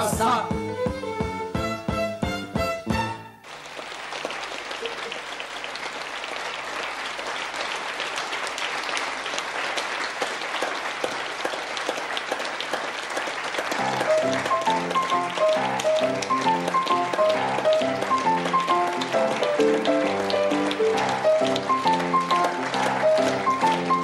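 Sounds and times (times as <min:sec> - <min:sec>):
music: 0:00.0 - 0:03.5, 0:13.7 - 0:24.0
audience applauding: 0:03.4 - 0:24.0.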